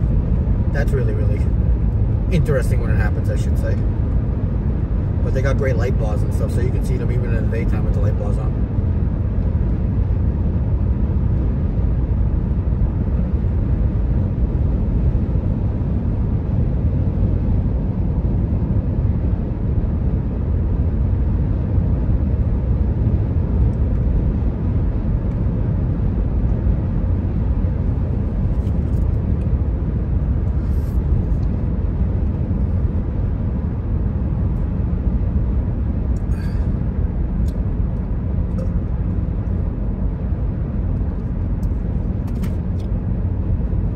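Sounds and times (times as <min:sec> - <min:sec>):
car road and engine rumble: 0:00.0 - 0:43.9.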